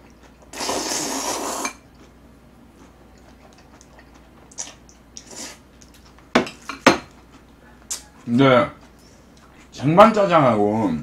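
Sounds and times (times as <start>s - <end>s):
loud noodle slurp: 0.5s - 1.8s.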